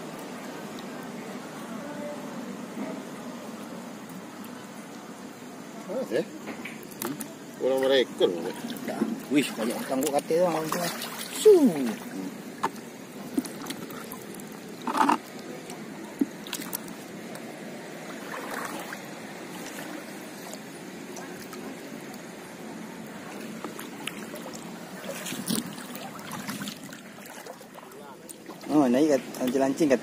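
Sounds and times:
water sloshing and trickling: 0:02.8 - 0:30.0
water splashes: 0:03.4 - 0:30.0.

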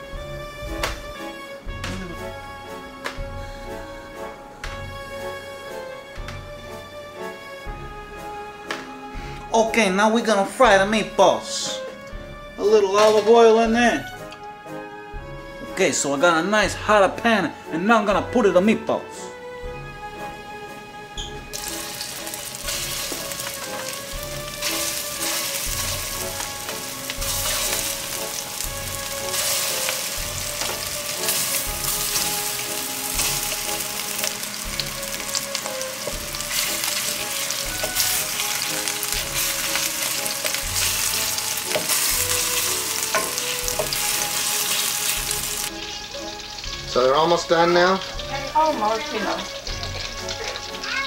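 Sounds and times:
meatballs sizzling in oil: 0:21.3 - 0:51.0.

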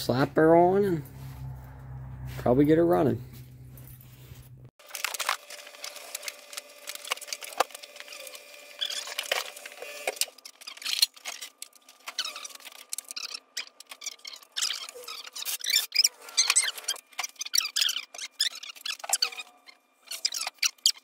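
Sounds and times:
hand tools and metal parts clinking: 0:07.0 - 0:21.0.

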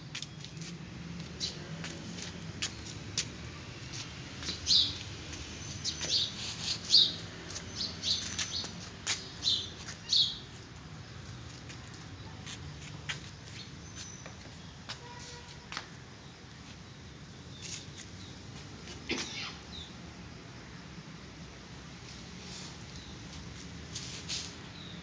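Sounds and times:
small bird chirping: 0:03.9 - 0:10.8.

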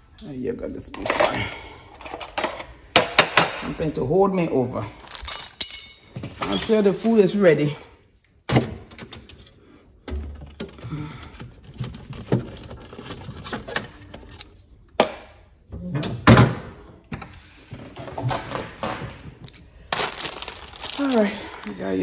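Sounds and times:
items clicking and knocking: 0:00.9 - 0:03.7, 0:08.5 - 0:15.3, 0:17.0 - 0:21.0.

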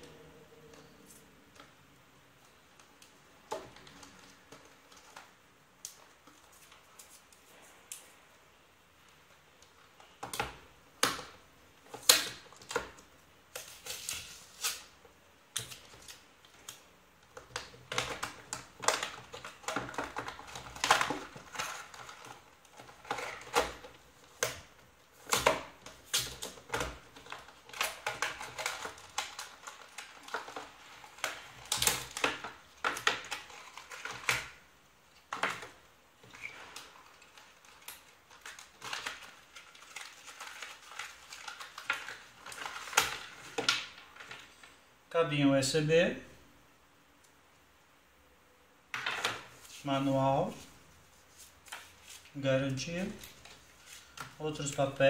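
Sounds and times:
cardboard and plastic crinkling: 0:15.6 - 0:34.6, 0:35.2 - 0:44.8, 0:49.0 - 0:55.0.

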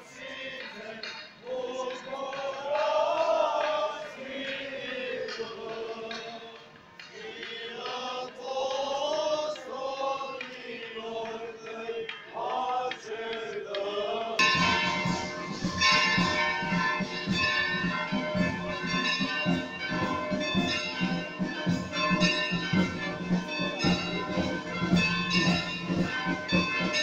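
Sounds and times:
men chanting a hymn: 0:00.0 - 0:15.6
church bells ringing: 0:14.4 - 0:27.0.

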